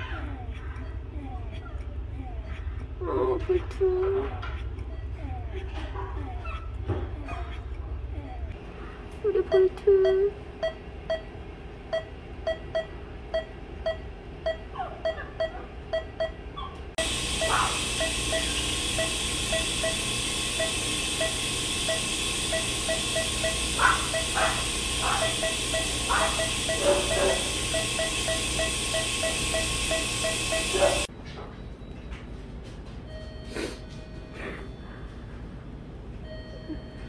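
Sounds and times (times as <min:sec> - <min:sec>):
patient monitor beeping: 0:09.3 - 0:16.4, 0:17.0 - 0:31.1, 0:33.1 - 0:35.6, 0:36.2 - 0:37.0
steady hiss: 0:17.0 - 0:31.1.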